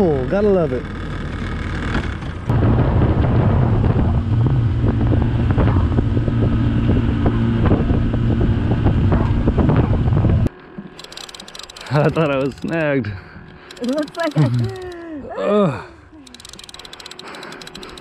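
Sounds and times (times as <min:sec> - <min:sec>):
wind buffeting microphone: 0:02.4 - 0:10.5
outboard motor droning: 0:03.4 - 0:15.0.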